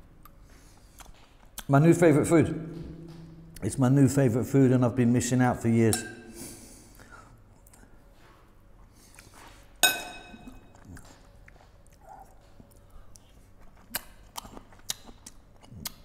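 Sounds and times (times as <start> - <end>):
quiet chewing: 0.2 - 1.7, 8.8 - 9.7, 10.4 - 16.0
spoon clinking in ceramic bowl: 9.8 - 10.7.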